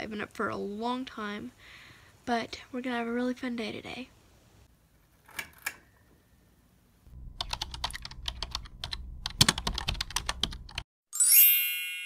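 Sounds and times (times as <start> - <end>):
low rumble: 7.1 - 9.9
rapid sharp clicks: 7.4 - 10.8.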